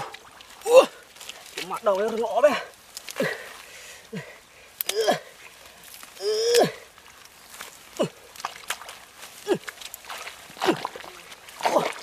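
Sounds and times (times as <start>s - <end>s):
rustling grass: 0.0s - 12.0s
splashing in muddy water: 0.0s - 12.0s
person exclaiming: 0.6s - 1.0s, 4.9s - 5.3s, 6.2s - 6.8s.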